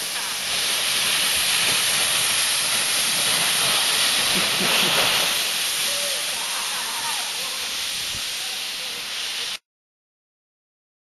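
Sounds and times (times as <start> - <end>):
canoe hull sliding over snow: 0.0 - 8.6.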